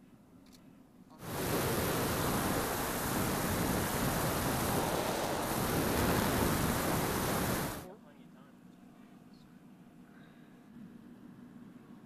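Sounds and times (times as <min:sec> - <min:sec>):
airflow rushing over microphone: 0:01.2 - 0:07.9.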